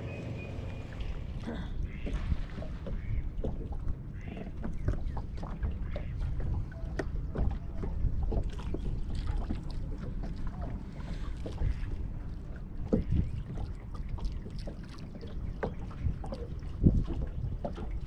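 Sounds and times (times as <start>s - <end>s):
small waves lapping against hull: 0.0s - 18.0s
wind rumbling on microphone: 0.0s - 18.0s.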